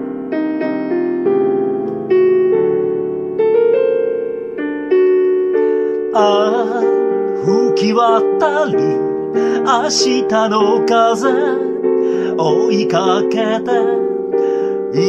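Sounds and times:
piano playing: 0:00.0 - 0:15.0
man singing: 0:06.2 - 0:14.2.

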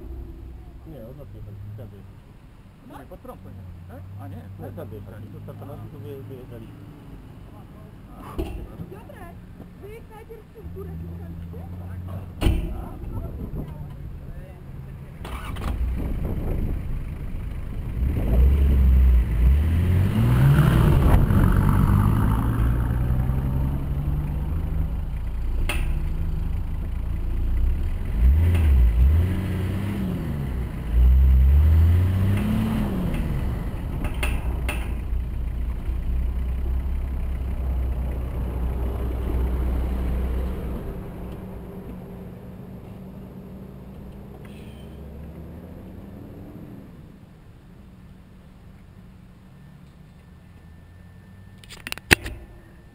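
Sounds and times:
diesel engine revving: 0:10.6 - 0:47.1.

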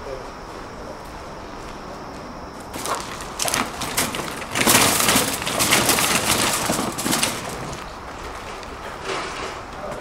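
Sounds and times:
shopping cart rattling on dirt: 0:02.7 - 0:10.0.

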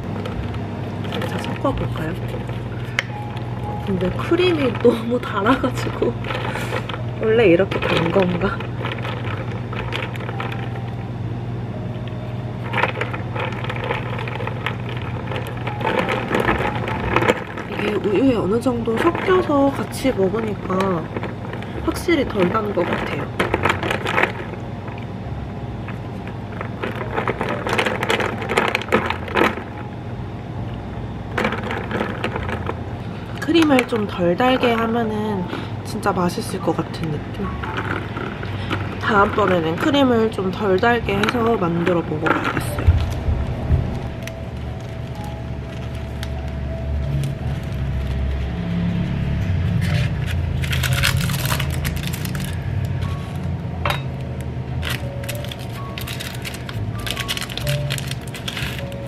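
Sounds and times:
scraping and clicking handling noises: 0:00.0 - 0:11.1, 0:12.0 - 0:25.0, 0:25.8 - 0:29.9, 0:31.3 - 0:59.0
steady low hum: 0:00.0 - 0:59.0
background music with low beat: 0:42.7 - 0:45.7.

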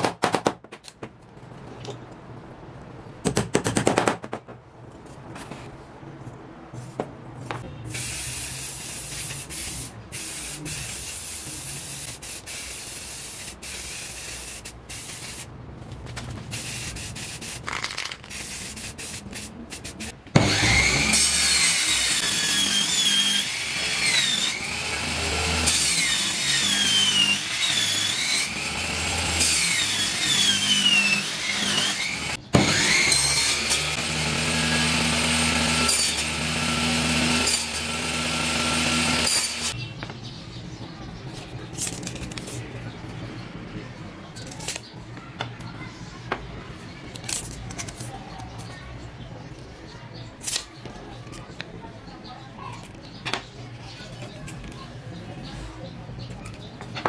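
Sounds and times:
spray-paint can hissing: 0:07.9 - 0:15.5, 0:16.5 - 0:20.1
table saw cutting plywood: 0:20.4 - 0:39.7.

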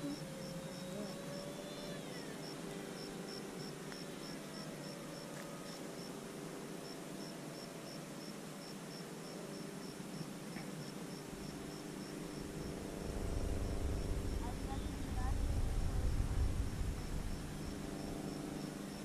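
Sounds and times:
model plane motor droning: 0:00.0 - 0:07.4, 0:11.3 - 0:19.0
cricket chirping: 0:00.0 - 0:19.0
low rumble: 0:12.2 - 0:19.0.

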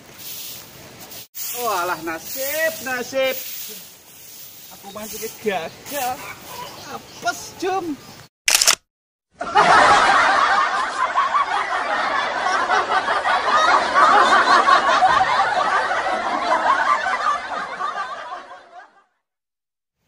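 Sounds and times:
crowd laughing: 0:09.4 - 0:19.2.

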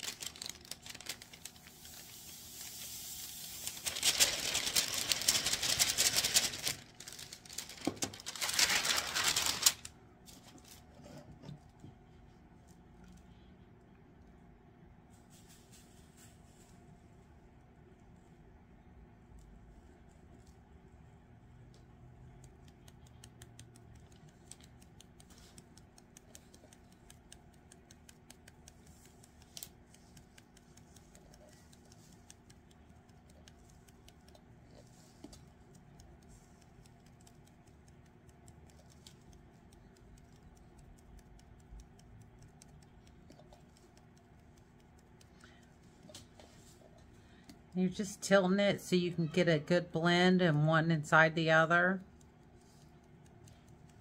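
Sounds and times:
low steady hum: 0:00.0 - 0:54.0.

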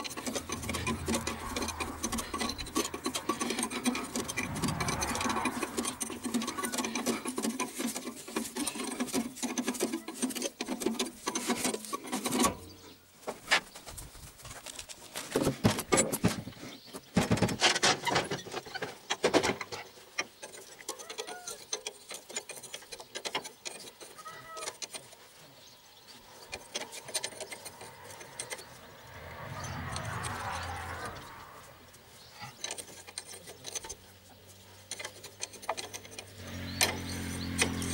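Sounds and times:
hand tools and metal parts clinking: 0:00.0 - 0:13.6, 0:14.5 - 0:37.9
birds chirping faintly: 0:11.3 - 0:15.2, 0:18.2 - 0:37.9.

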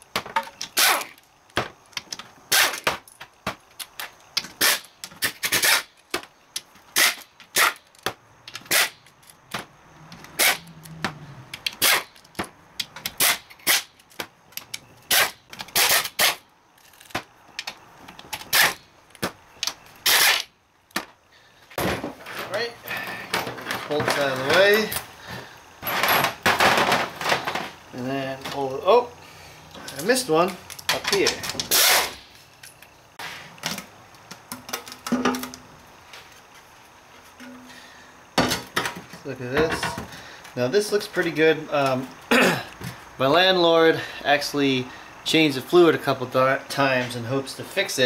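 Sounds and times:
pneumatic impact wrench bursts: 0:00.7 - 0:01.2, 0:02.5 - 0:03.0, 0:04.5 - 0:05.9, 0:06.9 - 0:07.9, 0:08.6 - 0:09.0, 0:10.4 - 0:10.7, 0:11.7 - 0:12.2, 0:13.1 - 0:13.9, 0:15.1 - 0:17.1, 0:18.4 - 0:18.8, 0:20.0 - 0:20.5, 0:31.6 - 0:32.3.

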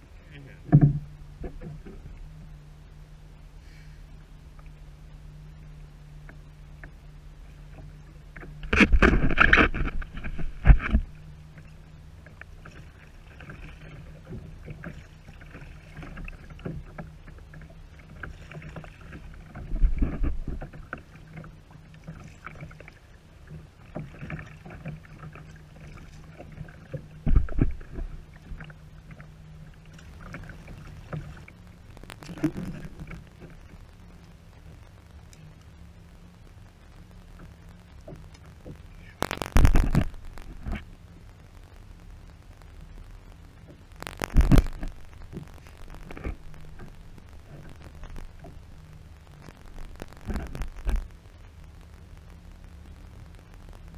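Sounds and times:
water lapping against hull: 0:00.0 - 0:41.5, 0:42.1 - 0:53.9
low hum: 0:00.0 - 0:53.9
paddle splashing and knocking: 0:00.6 - 0:02.1.

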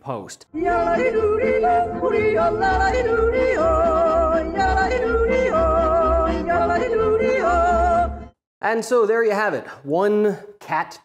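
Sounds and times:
yodeling song: 0:00.6 - 0:08.3.

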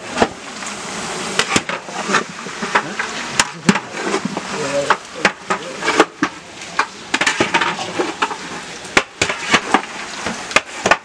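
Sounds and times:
meat sizzling in oil: 0:00.0 - 0:11.0
metal stirrer scraping a pot: 0:01.4 - 0:10.1.

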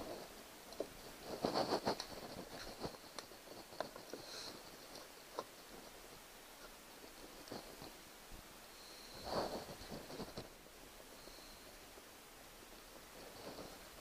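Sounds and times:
rustling clatter: 0:00.0 - 0:08.0, 0:09.0 - 0:10.6, 0:13.0 - 0:14.0.

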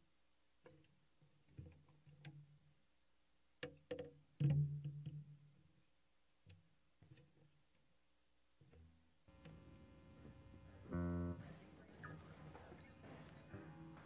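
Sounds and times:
acoustic guitar notes plucked: 0:10.8 - 0:14.0.

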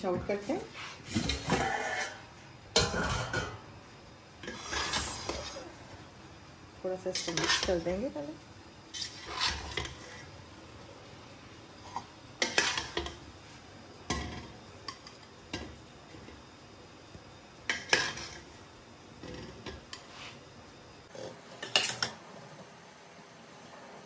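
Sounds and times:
spoon scraping a metal pot: 0:01.1 - 0:03.5, 0:04.4 - 0:05.7, 0:07.1 - 0:07.9, 0:08.9 - 0:10.3, 0:11.9 - 0:13.2.

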